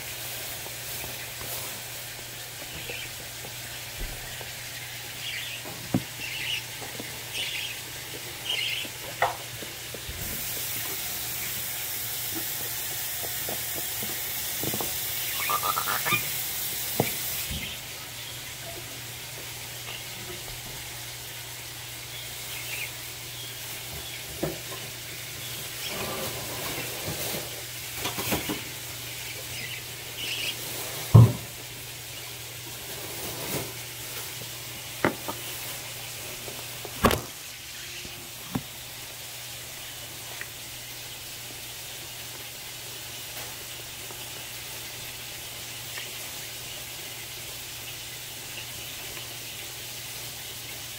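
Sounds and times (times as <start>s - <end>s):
steady hiss: 0.0s - 50.9s
parrot chicks chirping: 0.3s - 33.6s, 37.4s - 38.4s.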